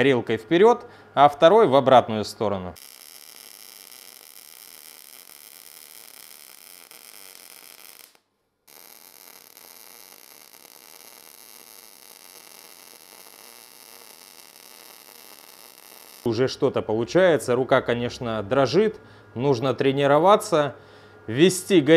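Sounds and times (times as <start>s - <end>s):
welding arc buzzing: 2.8s - 16.3s.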